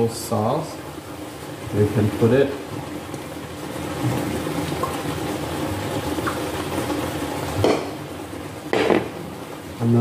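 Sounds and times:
chicken sizzling in a skillet: 0.0s - 10.0s.

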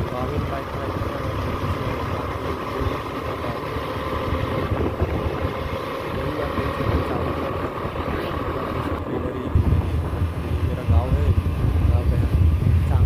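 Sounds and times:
vehicle engine running: 0.0s - 13.0s
wind on microphone: 4.2s - 13.0s.

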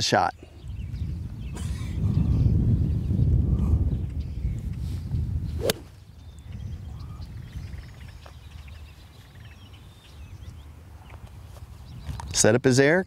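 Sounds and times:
birds chirping: 0.0s - 12.7s
golf club whip-like crack: 5.6s - 6.0s.

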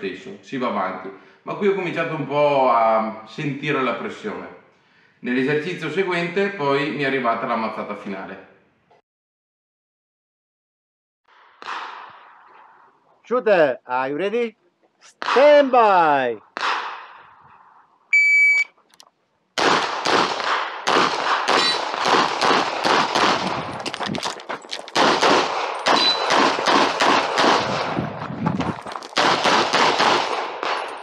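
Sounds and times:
rapid pistol fire: 16.5s - 17.2s, 19.6s - 23.8s, 25.0s - 28.1s, 29.2s - 31.0s
shot timer beep: 18.1s - 18.8s.

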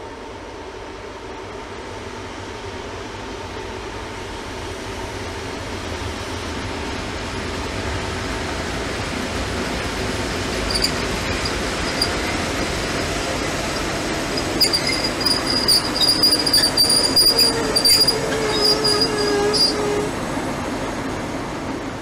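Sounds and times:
diesel locomotive engine running: 0.0s - 22.0s
metallic wheel squeal: 10.6s - 20.1s.

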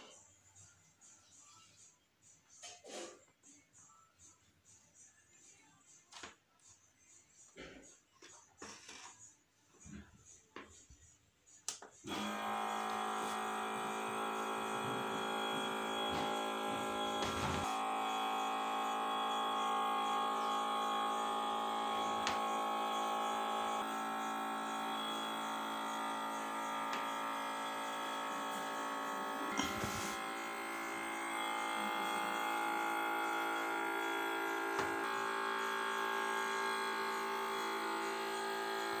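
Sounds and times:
small water pump buzzing: 12.0s - 39.0s.

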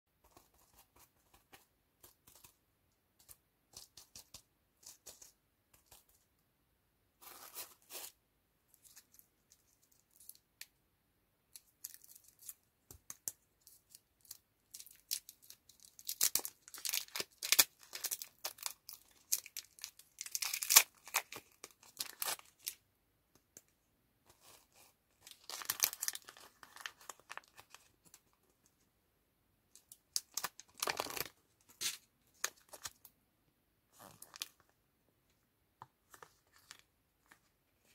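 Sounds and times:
wrappers crinkling and tearing: 14.8s - 22.8s, 25.3s - 27.8s.

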